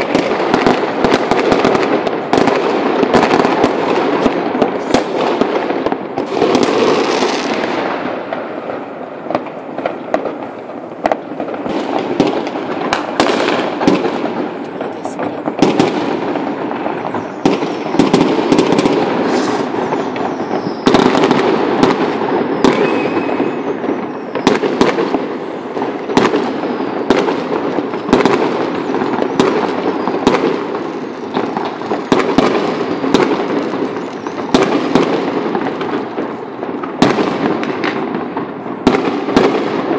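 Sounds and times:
fireworks and firecrackers banging: 0.0s - 39.9s
firework whistle: 16.9s - 39.9s.

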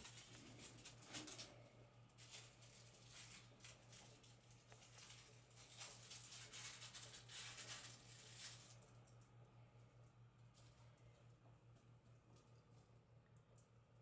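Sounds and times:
kittens scuffling and pattering: 0.0s - 9.3s
low steady hum: 0.0s - 14.0s.

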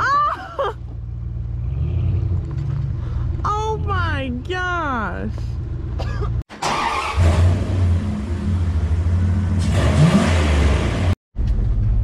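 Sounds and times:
off-road vehicle engine revving: 1.2s - 4.3s, 6.6s - 11.2s.

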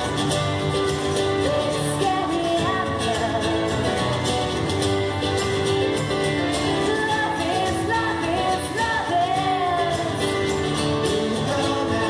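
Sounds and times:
acoustic guitar: 0.0s - 12.0s
woman singing: 1.3s - 4.0s, 6.8s - 10.4s.

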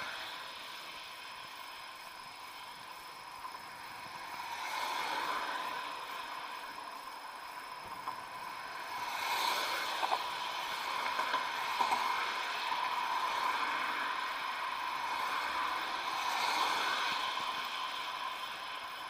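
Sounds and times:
bicycle road and wind noise: 0.0s - 19.0s
car traffic passing: 0.0s - 19.0s
thin steady whine: 0.0s - 19.0s.

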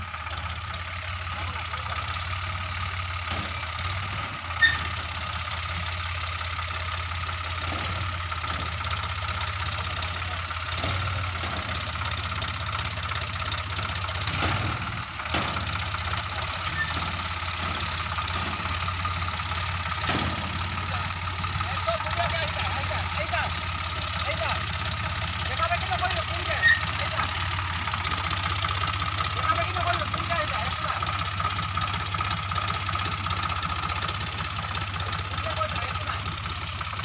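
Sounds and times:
tractor diesel engine running: 0.0s - 37.0s.

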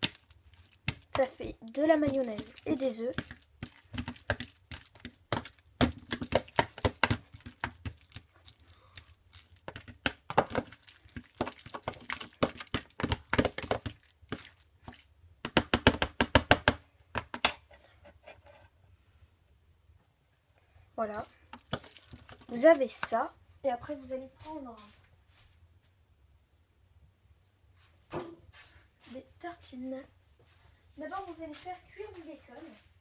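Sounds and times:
fork tapping and scraping tub: 0.0s - 8.3s.

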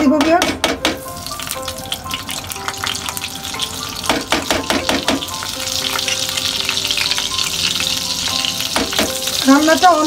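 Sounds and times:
butter sizzling in frying pan: 1.0s - 10.0s.

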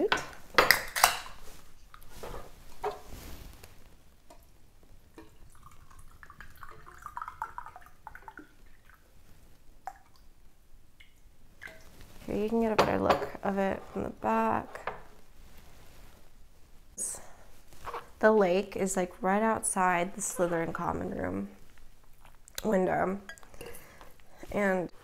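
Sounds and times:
liquid pouring into cup: 5.2s - 9.0s.

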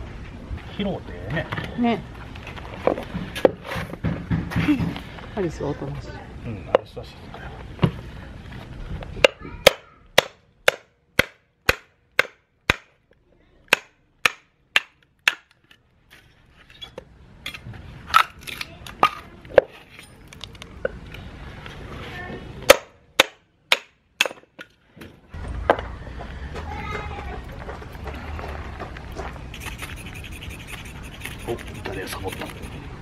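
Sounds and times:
mallet knocking on hatchet: 9.2s - 12.9s.

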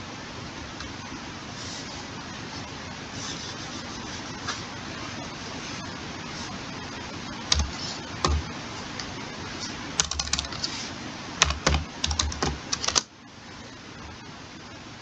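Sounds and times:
steady hiss: 0.0s - 15.0s
keyboard keystrokes: 7.5s - 8.4s, 10.0s - 10.6s, 11.4s - 13.1s.

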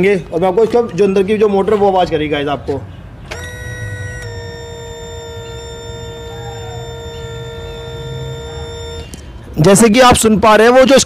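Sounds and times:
fuel pump motor whining: 3.3s - 9.5s.

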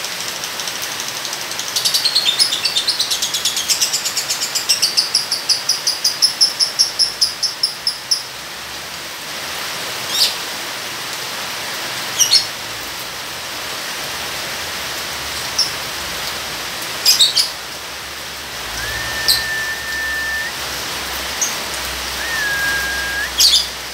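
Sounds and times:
steady hiss of rain: 0.0s - 23.9s
short level bird whistle: 18.7s - 20.6s, 22.2s - 23.7s
sharp bird chirps: 18.8s - 20.5s, 22.2s - 23.7s.

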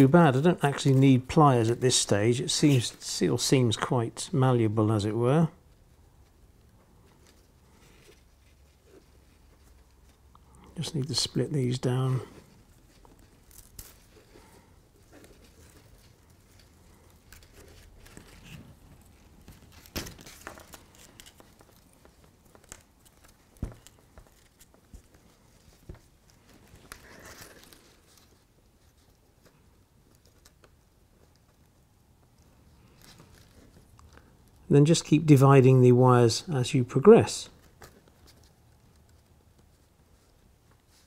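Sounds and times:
wire strands rustling and clicking: 6.1s - 34.7s.

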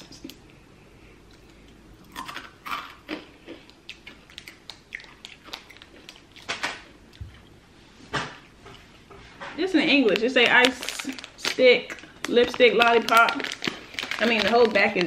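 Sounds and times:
plastic wrapper crinkling: 9.6s - 15.0s.

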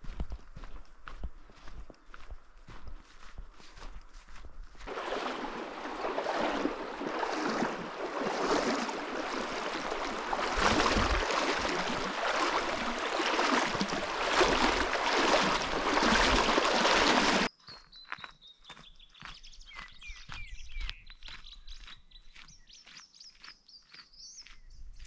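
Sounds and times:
river running over stones: 4.9s - 17.5s
bird chirps: 17.5s - 25.0s.

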